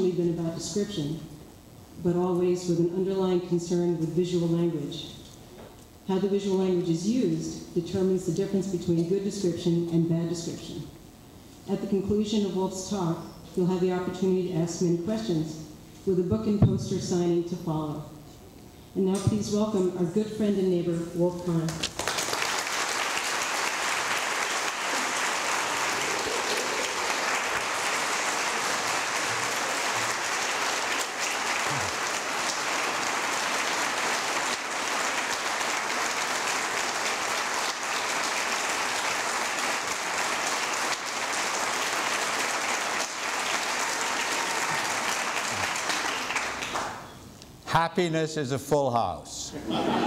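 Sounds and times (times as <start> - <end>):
large audience applauding: 21.8 - 47.1.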